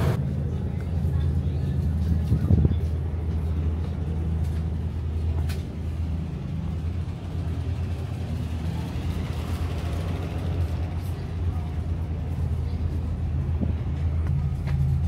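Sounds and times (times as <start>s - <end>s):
ferry engines droning: 0.0s - 15.0s.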